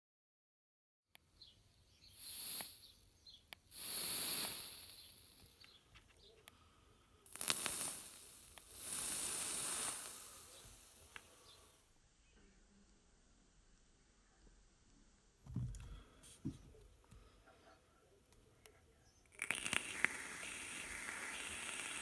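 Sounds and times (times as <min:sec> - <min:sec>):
vape coil sizzling and crackling: 0:02.0 - 0:05.8, 0:07.2 - 0:11.8, 0:19.3 - 0:22.0.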